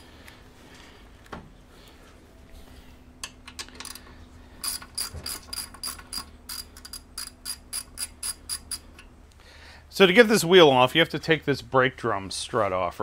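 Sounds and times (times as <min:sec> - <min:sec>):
ratchet wrench clicking: 0:04.6 - 0:09.1.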